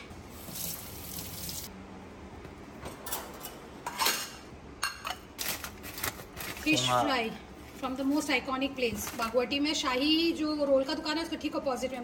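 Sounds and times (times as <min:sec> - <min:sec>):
water running from tap: 0:00.3 - 0:01.7.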